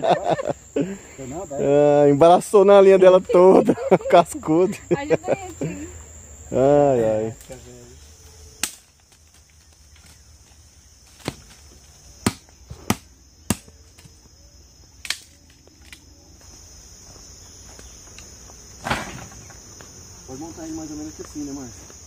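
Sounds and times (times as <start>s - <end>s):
high insect hum: 0.0s - 22.0s
dry branches snapping: 8.6s - 10.2s, 11.1s - 14.1s, 15.0s - 16.1s.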